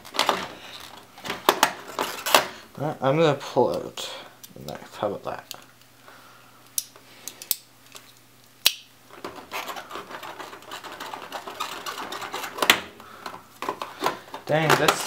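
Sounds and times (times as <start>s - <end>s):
plastic and metal scraping and rattling: 0.0s - 2.6s, 9.1s - 15.0s.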